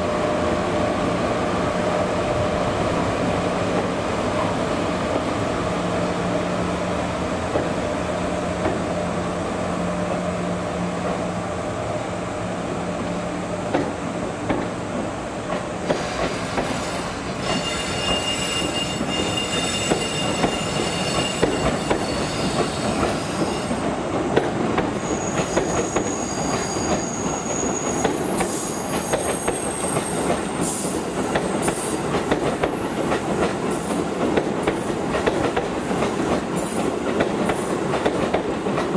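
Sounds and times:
high-pitched wheel squeal: 16.7 - 23.8, 25.0 - 31.2.

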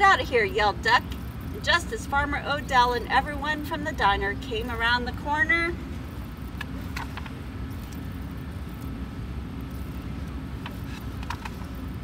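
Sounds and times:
low outdoor rumble: 0.0 - 12.0
book pages turning: 10.6 - 11.8.

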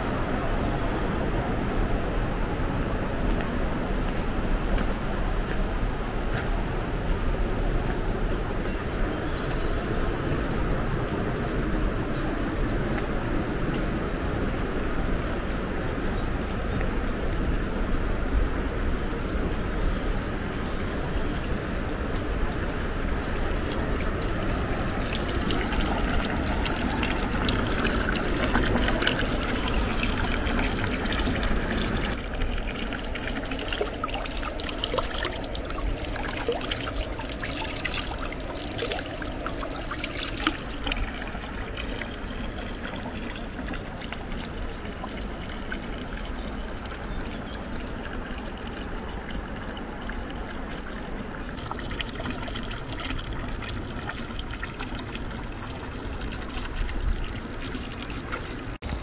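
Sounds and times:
water pouring into stone trough: 20.4 - 59.0.

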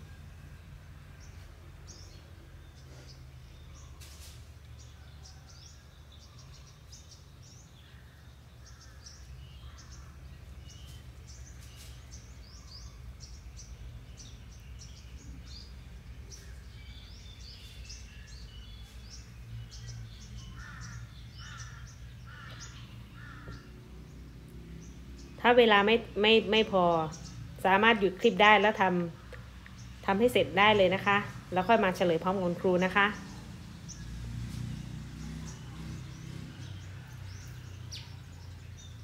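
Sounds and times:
birds chirping: 0.0 - 39.0
harsh bird calls: 0.0 - 39.0.

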